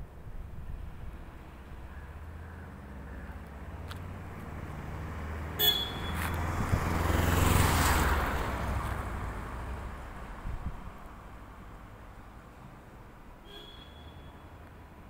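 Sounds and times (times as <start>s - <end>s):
low traffic hum: 0.0s - 15.0s
vehicle passing by: 2.7s - 10.5s
short horn toot: 5.6s - 6.3s, 13.5s - 14.4s.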